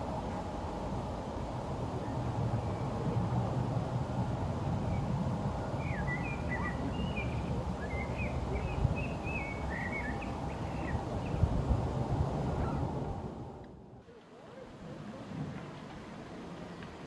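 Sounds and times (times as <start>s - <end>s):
songbird chirping: 5.7s - 11.5s.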